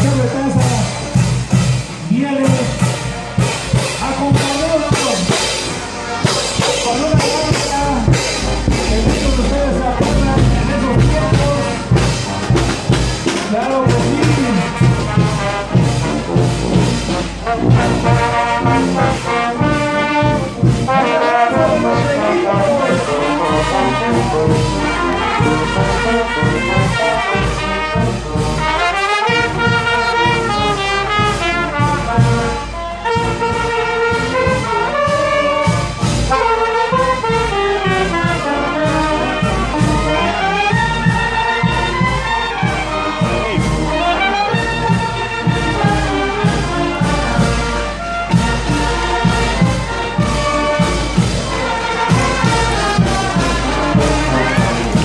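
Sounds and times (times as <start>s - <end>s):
brass band playing: 0.0s - 55.0s
bass drum beats: 3.6s - 19.8s, 48.3s - 55.0s.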